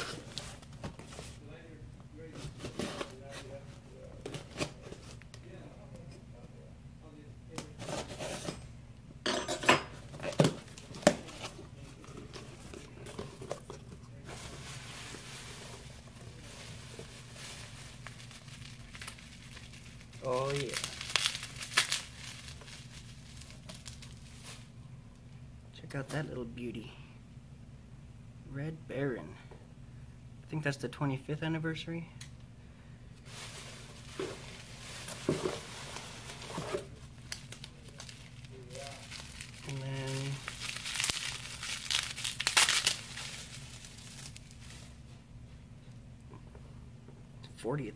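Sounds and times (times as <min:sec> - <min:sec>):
packing material rustling: 0:10.1 - 0:24.7, 0:33.2 - 0:45.1.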